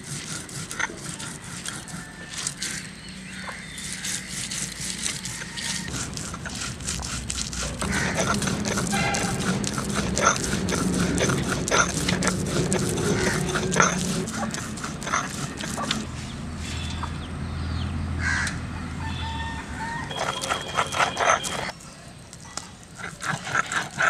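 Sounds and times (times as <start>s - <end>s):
stone roller grinding and scraping: 0.0s - 16.4s, 20.1s - 21.8s, 23.0s - 24.0s.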